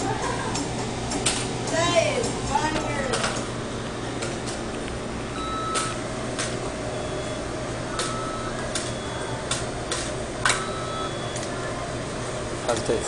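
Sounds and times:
steady restaurant hum: 0.0s - 13.0s
short electronic beeps with clicks: 7.0s - 9.2s.

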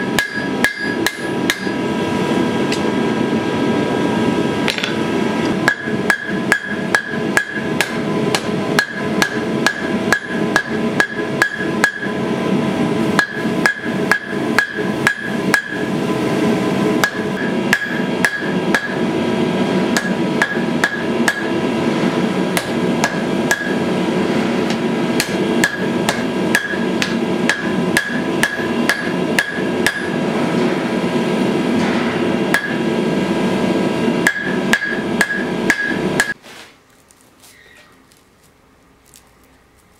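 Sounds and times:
hammer striking steel on anvil: 0.0s - 1.8s, 5.6s - 12.2s, 13.2s - 15.9s, 17.0s - 19.1s, 19.9s - 21.6s, 22.5s - 23.9s, 24.7s - 30.2s, 31.8s - 32.9s, 34.2s - 36.4s.

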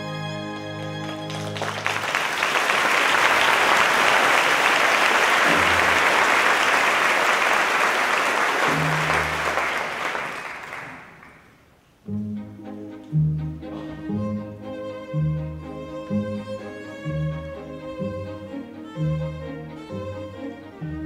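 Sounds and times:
music: 0.0s - 2.0s, 12.0s - 21.0s
audience applauding: 1.0s - 11.6s.

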